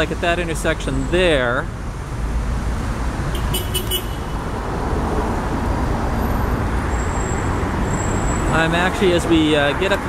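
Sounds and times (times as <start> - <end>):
traffic rumble of car engines and tyres: 0.0 - 10.0.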